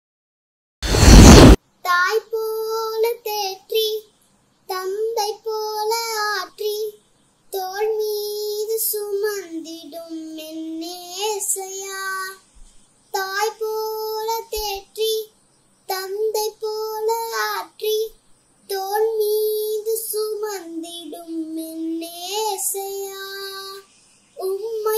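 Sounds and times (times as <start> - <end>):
girl singing solo: 18.7 - 24.9.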